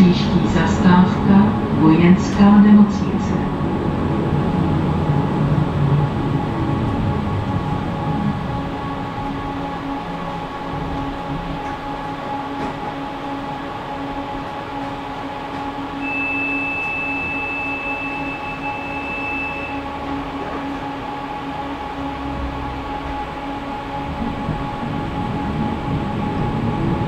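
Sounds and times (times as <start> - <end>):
tram wheels rumbling on rails: 0.0 - 27.0
electric motor hum: 3.5 - 27.0
high thin whine: 15.9 - 27.0.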